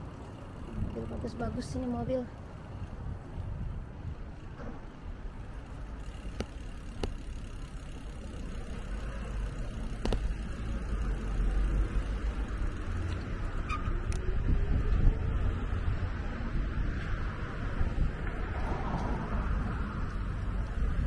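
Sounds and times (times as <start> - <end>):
city road traffic rumble: 0.0 - 21.0
sharp ticks: 5.9 - 13.3.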